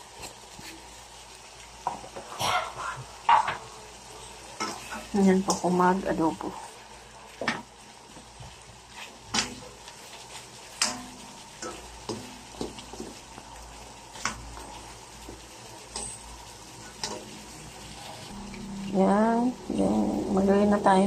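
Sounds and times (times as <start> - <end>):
chicken sizzling in oil: 0.0 - 21.0
spatula knocking and scraping pan: 1.8 - 3.7, 10.7 - 13.3.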